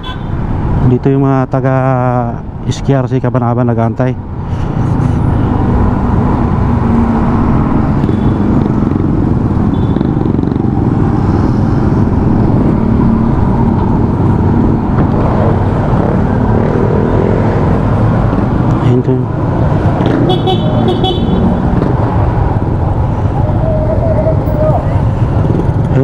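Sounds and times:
motorcycle engine and road noise: 0:00.0 - 0:26.0
other traffic: 0:00.0 - 0:26.0
wind rushing on microphone: 0:04.2 - 0:20.4.

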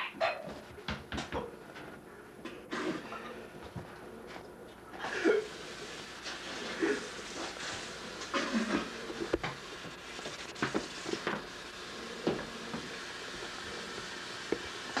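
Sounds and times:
steady hiss: 0:05.0 - 0:15.0.

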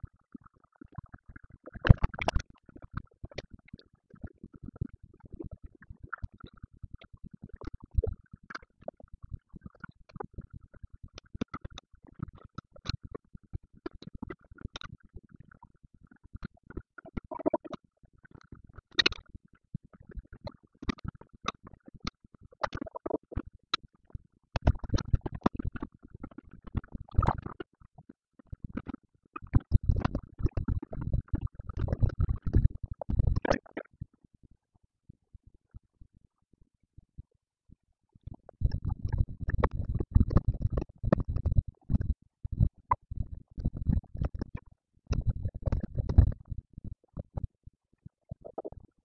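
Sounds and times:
fast patter of clicks and knocks: 0:38.6 - 0:42.7.

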